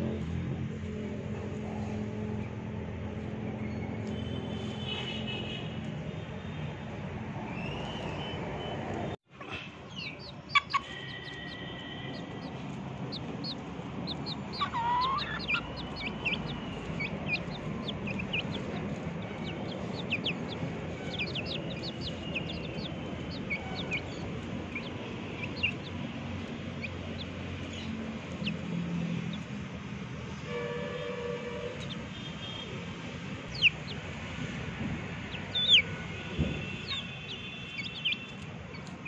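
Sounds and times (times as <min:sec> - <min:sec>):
chicks peeping: 0:09.4 - 0:29.7, 0:31.7 - 0:32.1, 0:33.4 - 0:39.0.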